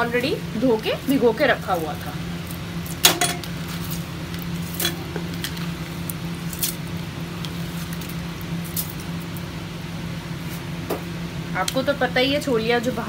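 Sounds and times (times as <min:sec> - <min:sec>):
steady low hum: 0:00.0 - 0:13.0
soft squishes and clicks: 0:00.8 - 0:09.5.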